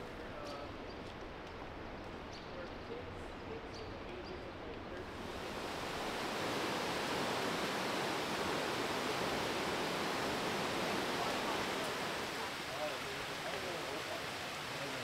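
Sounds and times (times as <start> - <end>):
flowing water rushing: 5.0 - 15.0.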